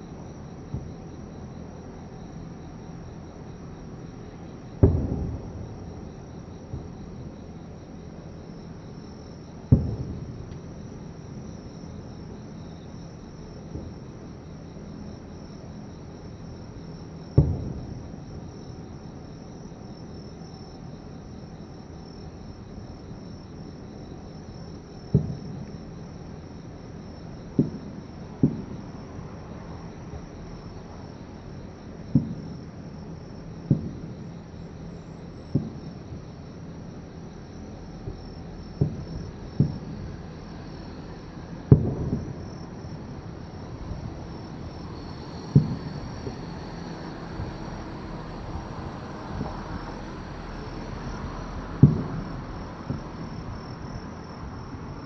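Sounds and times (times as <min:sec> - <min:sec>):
insects chirring: 0:00.0 - 0:55.0
distant fireworks booming: 0:04.3 - 0:07.8, 0:09.6 - 0:11.6, 0:13.6 - 0:14.2, 0:17.2 - 0:18.8, 0:24.0 - 0:26.0, 0:27.2 - 0:30.9, 0:32.0 - 0:33.0, 0:33.6 - 0:34.4, 0:35.4 - 0:36.3, 0:37.9 - 0:54.1.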